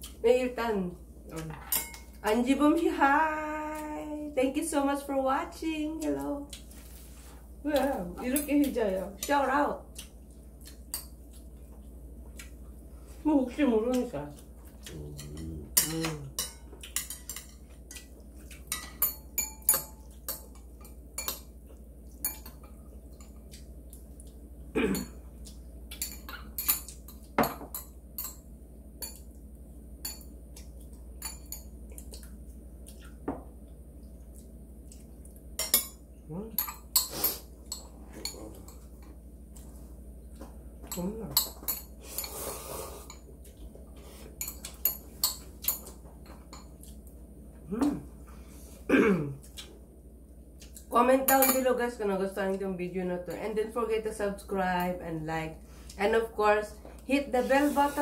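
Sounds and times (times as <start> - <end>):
slurping noodles: 42.3 - 43.1.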